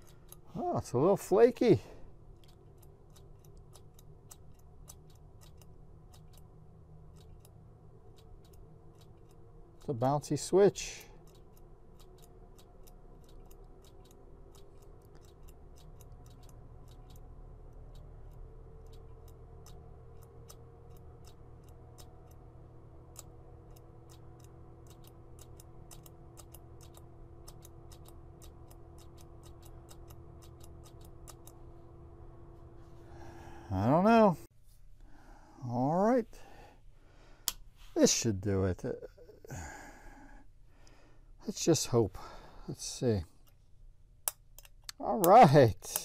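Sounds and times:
amplifier hum: 0.0s - 35.0s
footswitch clicking: 37.4s - 37.6s.

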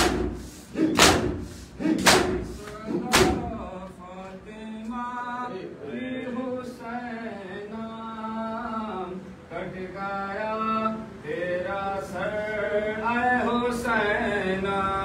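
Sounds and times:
men slapping chests in unison: 0.0s - 3.9s
men chanting: 0.0s - 15.0s.

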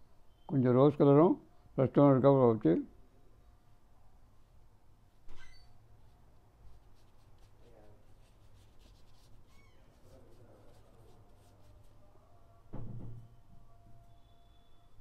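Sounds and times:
paintbrush strokes on paper: 5.9s - 12.3s.

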